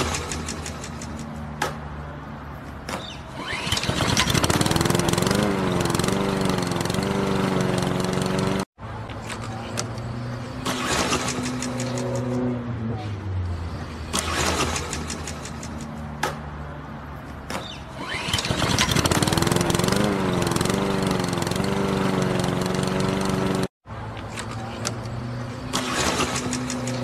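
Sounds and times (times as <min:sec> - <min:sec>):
lawn mower engine starting: 0:03.4 - 0:08.7, 0:10.6 - 0:12.4, 0:14.1 - 0:15.8, 0:18.0 - 0:23.7, 0:25.6 - 0:27.0.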